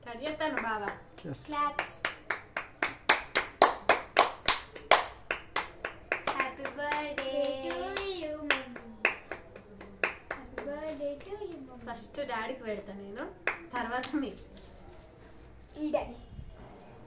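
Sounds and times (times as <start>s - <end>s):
hands clapping rhythmically: 0.3s - 11.7s, 12.8s - 14.3s.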